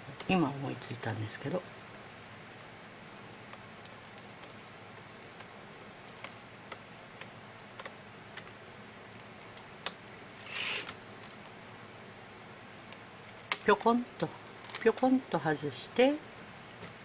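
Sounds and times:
brief hiss: 0:10.4 - 0:11.0.

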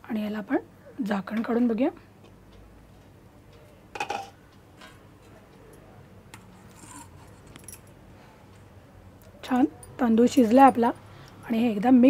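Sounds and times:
spatula scraping in rice: 0:06.6 - 0:07.3.

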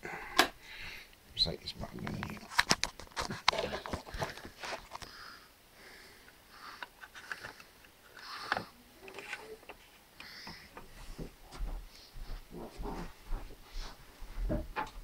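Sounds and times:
breathing and sniffing: 0:04.0 - 0:08.8.

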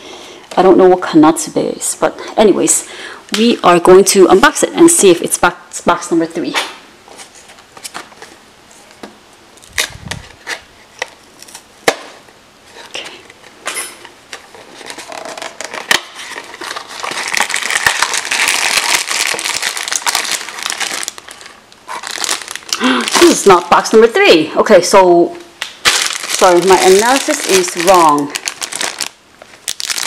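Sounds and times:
plastic bags crinkling: 0:14.3 - 0:23.9, 0:25.6 - 0:30.0.

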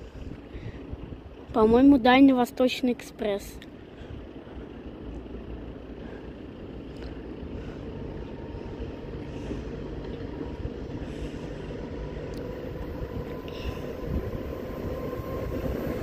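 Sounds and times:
distant train rumble: 0:00.0 - 0:16.0
faint steady whine: 0:00.0 - 0:16.0.

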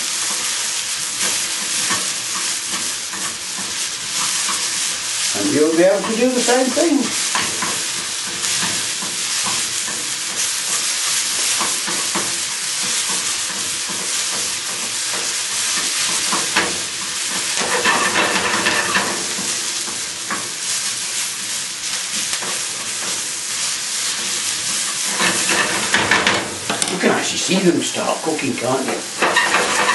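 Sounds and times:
onions sizzling in a frying pan: 0:00.0 - 0:29.9
utensil scraping and clicking on pan: 0:01.2 - 0:20.5, 0:24.0 - 0:27.0, 0:28.9 - 0:29.9.

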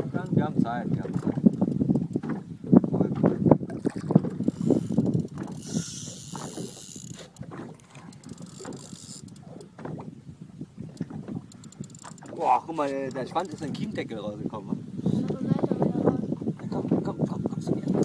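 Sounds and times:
fishing reel clicking: 0:04.4 - 0:09.7, 0:11.5 - 0:14.0.

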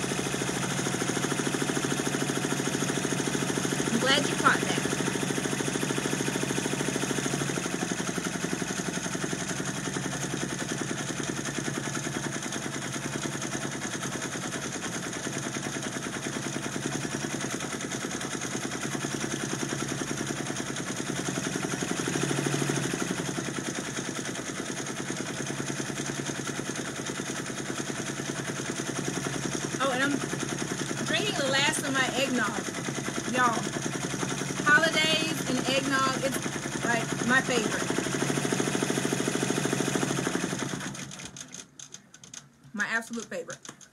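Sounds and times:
embroidery machine stitching: 0:00.0 - 0:42.5.

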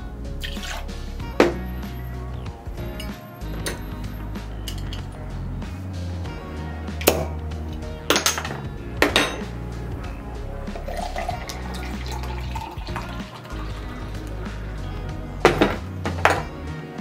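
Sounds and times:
background music: 0:00.0 - 0:17.0
spoon clinking glass bottle: 0:02.9 - 0:03.9, 0:04.6 - 0:05.1, 0:08.1 - 0:09.5
beer glugging into glass: 0:10.8 - 0:14.2.

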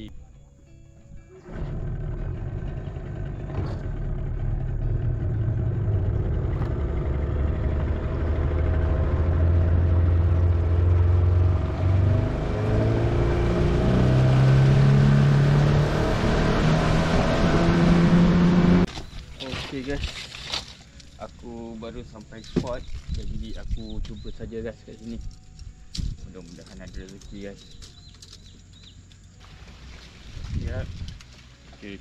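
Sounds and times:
outboard motor running: 0:01.3 - 0:20.0.

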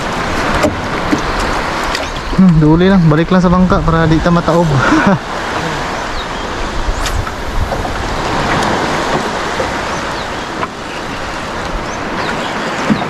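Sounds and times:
waves rushing: 0:00.0 - 0:13.0
wind: 0:00.0 - 0:13.0.

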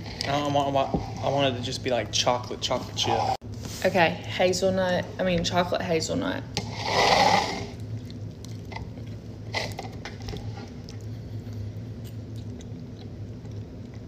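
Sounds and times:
steady low hum: 0:00.0 - 0:14.0
people chewing cake: 0:06.8 - 0:14.0.

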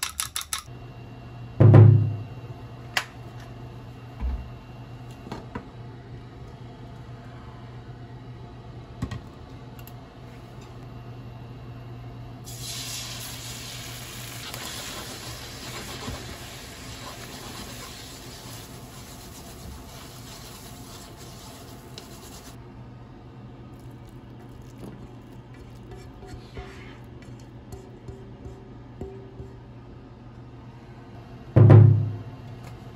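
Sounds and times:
low steady hum: 0:00.6 - 0:12.5, 0:16.3 - 0:32.9
egg sizzling in hot oil: 0:12.5 - 0:22.6.

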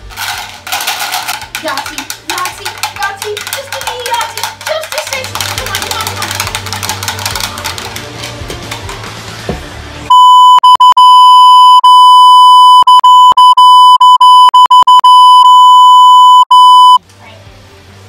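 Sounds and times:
high-pitched bleep tone: 0:10.1 - 0:17.0.

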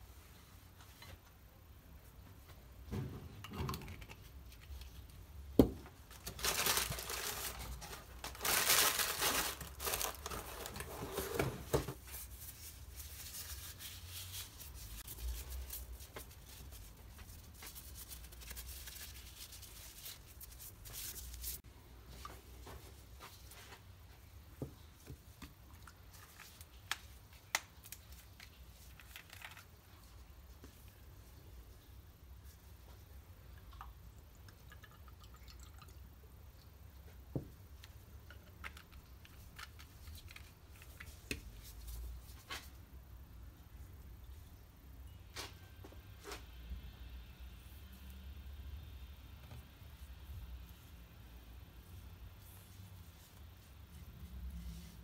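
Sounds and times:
plastic gloves crinkling: 0:04.4 - 0:21.6, 0:51.8 - 0:55.0.

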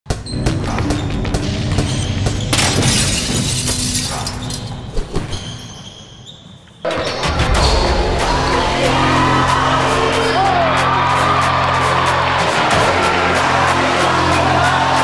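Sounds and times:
backing music track: 0:06.9 - 0:15.0.

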